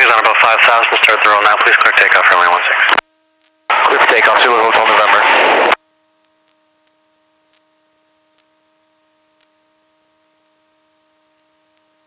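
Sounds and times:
faint steady electrical tone: 0:02.7 - 0:12.0
faint ticks: 0:06.2 - 0:07.7, 0:08.3 - 0:08.6, 0:09.4 - 0:09.6, 0:11.3 - 0:12.0.

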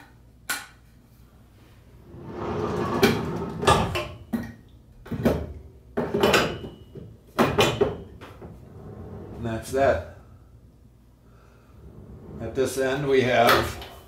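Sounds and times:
sliding rumble: 0:01.8 - 0:04.2, 0:08.4 - 0:09.8, 0:11.6 - 0:13.4
wood and metal knocks: 0:03.0 - 0:08.5.

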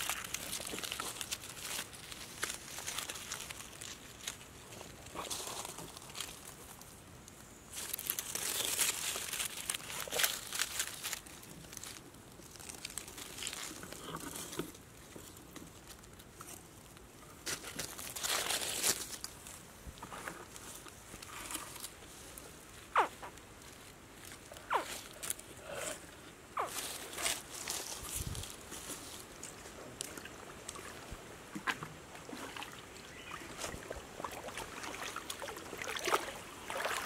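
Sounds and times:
dry leaves rustling and crackling: 0:00.0 - 0:07.0, 0:07.6 - 0:25.8, 0:26.6 - 0:31.6.

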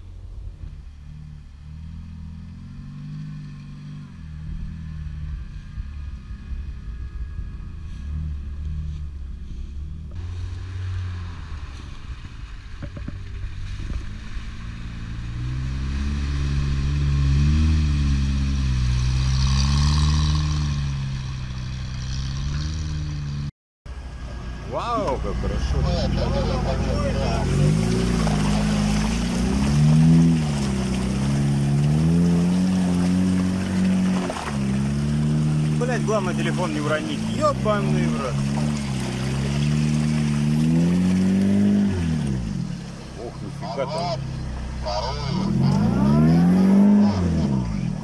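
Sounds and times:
engine revving in mud: 0:00.0 - 0:48.0.

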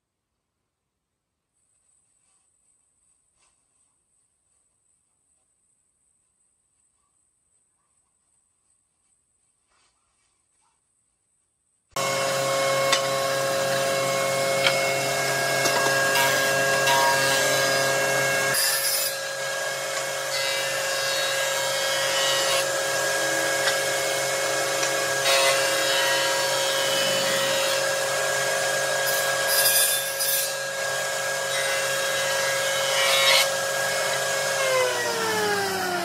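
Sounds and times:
saw blade winding down: 0:12.0 - 0:36.0
saw ripping wood: 0:12.0 - 0:36.0
table saw running: 0:12.0 - 0:36.0.

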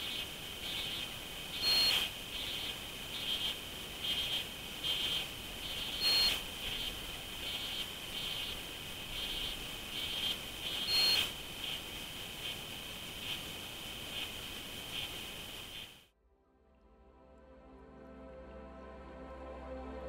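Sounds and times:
crickets chirping: 0:00.0 - 0:16.0.

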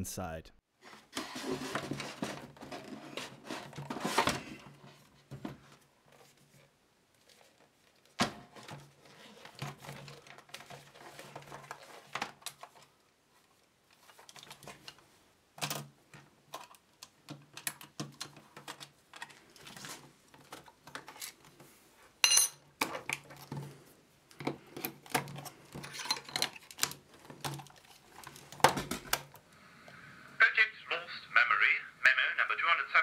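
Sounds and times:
rustling and scraping in wooden cabinet: 0:00.8 - 0:07.8, 0:08.4 - 0:14.9, 0:18.3 - 0:22.2, 0:22.9 - 0:29.1.

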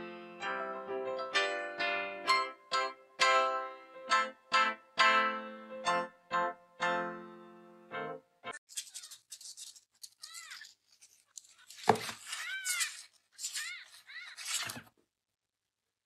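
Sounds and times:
paper and cardboard rustling: 0:08.7 - 0:15.0
kitten mewing: 0:12.4 - 0:14.7.

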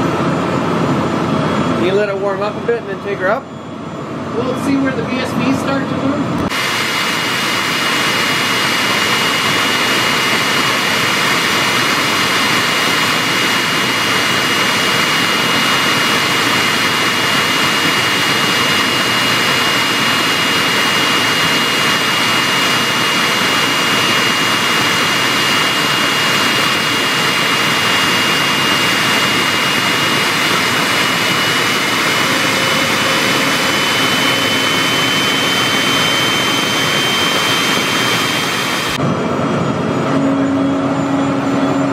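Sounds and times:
gas turbine rush and whine: 0:00.0 - 0:41.9.

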